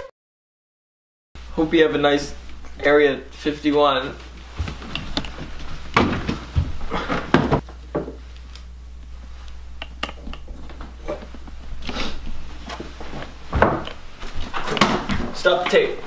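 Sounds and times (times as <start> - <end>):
knocks and thuds of handling objects: 4.6 - 8.2, 12.7 - 15.8.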